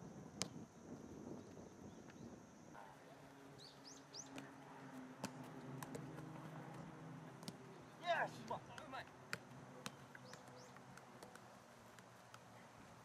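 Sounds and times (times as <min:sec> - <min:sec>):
bird chirps: 0:03.6 - 0:04.4, 0:09.8 - 0:10.8
football kicked on grass: 0:05.2 - 0:07.6.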